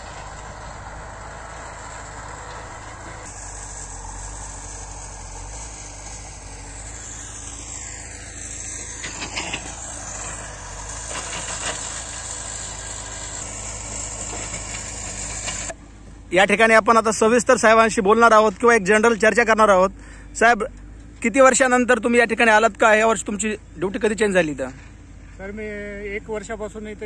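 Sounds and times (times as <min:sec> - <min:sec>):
excavator diesel engine running: 0:00.0 - 0:27.0.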